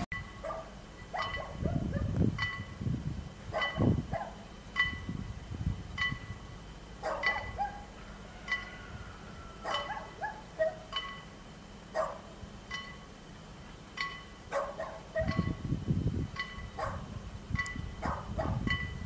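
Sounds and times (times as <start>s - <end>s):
dog barking: 0.4s - 2.2s, 3.5s - 4.4s, 7.0s - 7.9s, 9.6s - 10.9s, 11.9s - 12.3s, 14.5s - 15.4s, 16.8s - 17.1s, 18.0s - 18.7s.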